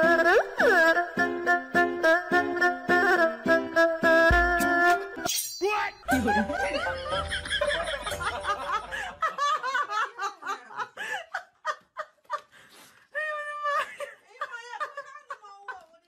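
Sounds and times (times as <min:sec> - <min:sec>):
person giggling: 0:06.1 - 0:12.5.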